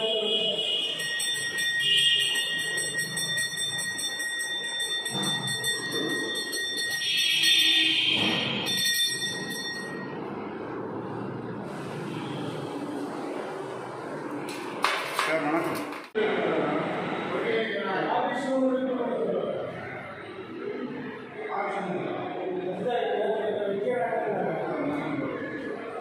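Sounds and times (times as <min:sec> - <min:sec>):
temple bell ringing: 0:00.0 - 0:10.3.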